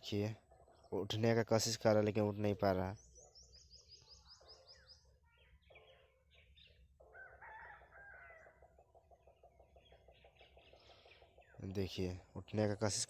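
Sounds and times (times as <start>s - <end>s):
high bird chirps: 2.4s - 11.9s
faint bird calls: 2.5s - 12.5s
soft pulsing bird call: 2.8s - 11.8s.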